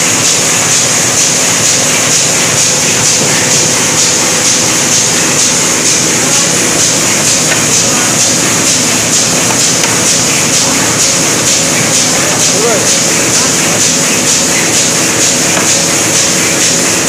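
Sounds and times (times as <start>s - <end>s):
machine clattering: 0.0s - 17.0s.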